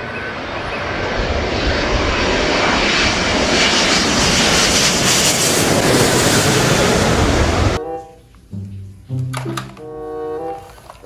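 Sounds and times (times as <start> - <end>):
jet airliner passing overhead: 0.0 - 7.8.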